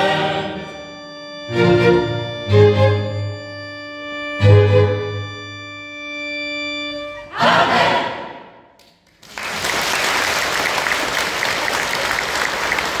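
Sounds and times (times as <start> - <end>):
choir with violins: 0.0 - 0.9, 1.5 - 3.3, 7.0 - 8.6
audience applause: 9.2 - 13.0.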